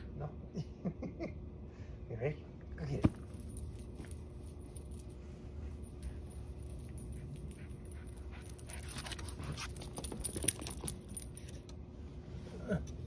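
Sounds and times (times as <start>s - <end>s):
dog collar tags jingling: 3.2s - 11.7s.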